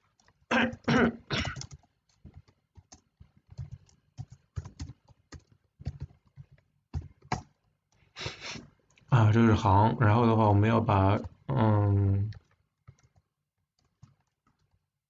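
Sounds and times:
typing on computer keyboard: 0.0 - 8.1, 11.2 - 14.9.

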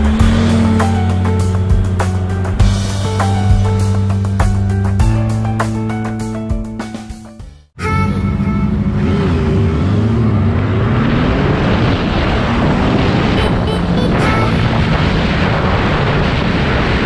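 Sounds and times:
motorcycle engine running: 0.0 - 6.8
wind rush: 10.7 - 17.0.

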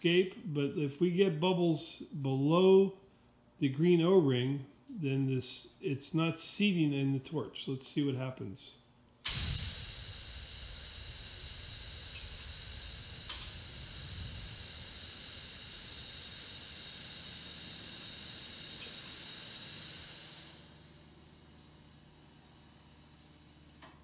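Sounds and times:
gas hissing from torch: 9.3 - 21.0.

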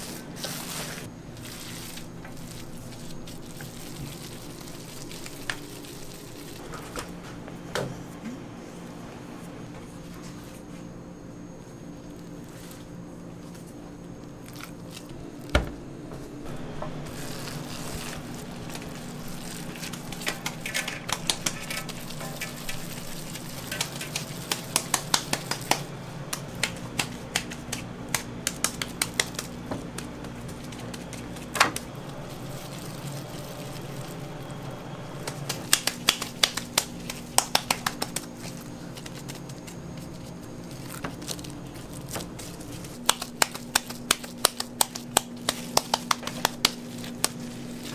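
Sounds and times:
steady low hum: 0.0 - 47.9
wet slaps of ground meat: 23.6 - 31.9, 35.2 - 38.6, 43.0 - 47.4.

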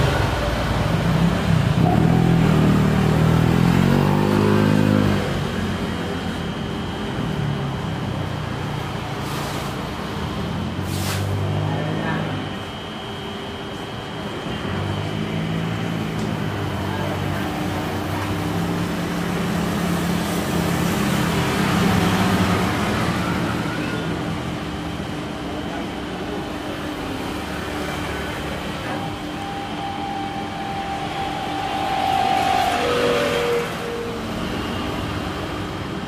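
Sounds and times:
jet engines rushing and whining: 12.4 - 36.0.

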